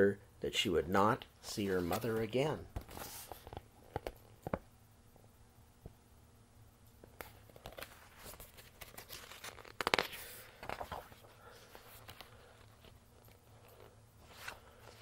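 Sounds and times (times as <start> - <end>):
book pages rustling: 1.6 - 4.6, 7.0 - 15.0.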